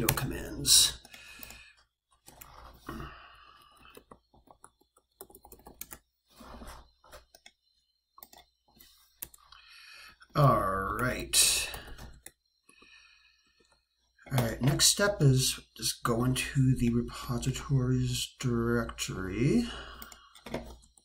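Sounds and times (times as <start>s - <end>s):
man speaking: 0.0s - 1.0s, 10.3s - 12.0s, 14.3s - 19.9s.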